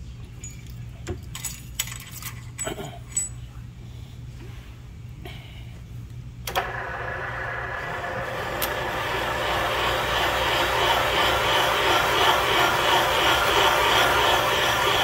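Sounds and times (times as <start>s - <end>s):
spindle motor humming: 6.5s - 15.0s
cutter cutting metal: 8.4s - 15.0s.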